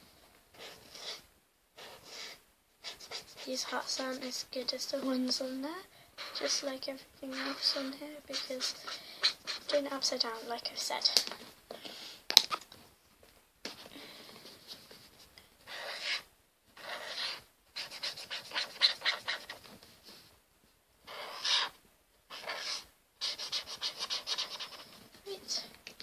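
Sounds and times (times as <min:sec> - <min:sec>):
pen scratching on paper: 0:00.6 - 0:01.2, 0:01.8 - 0:04.3, 0:06.2 - 0:06.7, 0:07.3 - 0:09.8, 0:14.7 - 0:19.8, 0:21.1 - 0:25.4.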